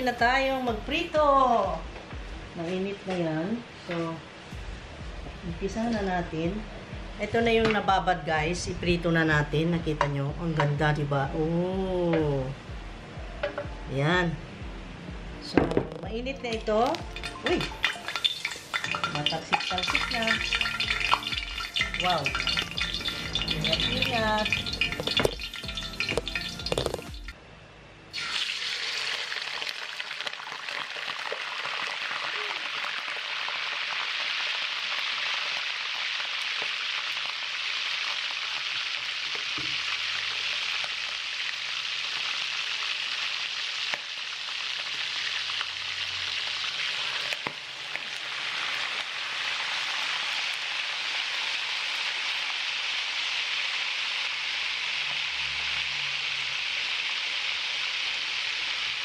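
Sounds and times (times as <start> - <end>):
pork deep-frying sizzle: 16.6 - 27.4, 28.1 - 59.0.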